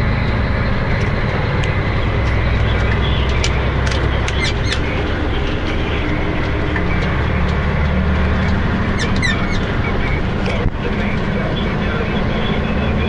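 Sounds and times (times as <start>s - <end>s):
vehicle engine and road noise: 0.0s - 13.0s.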